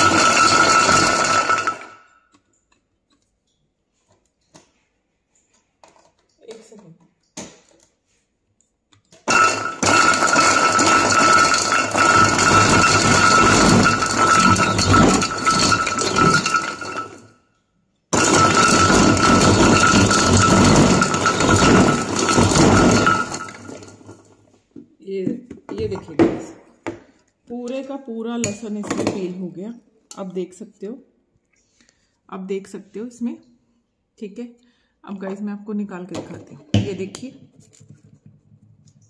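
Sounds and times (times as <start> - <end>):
garlic cloves rattling in bowl: 0.0 - 1.9, 9.3 - 17.2, 18.2 - 24.2.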